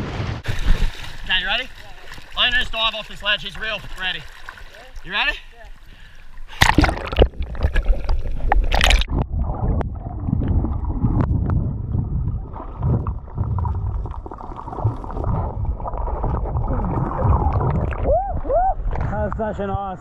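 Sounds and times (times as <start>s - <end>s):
water splashing: 0.0s - 19.1s
underwater rumble with bubbling: 6.6s - 19.3s.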